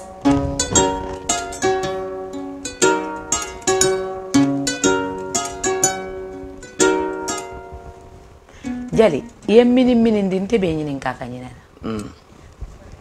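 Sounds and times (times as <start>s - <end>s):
harp-lute plucked melody: 0.0s - 10.2s.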